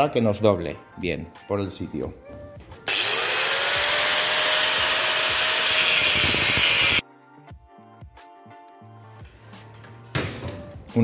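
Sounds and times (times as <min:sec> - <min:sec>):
rotary power tool cutting metal: 0:02.9 - 0:07.0.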